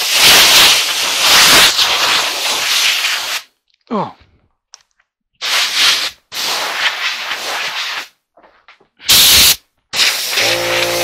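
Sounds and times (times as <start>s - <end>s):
compressed air blow gun hissing: 9.1s - 11.0s.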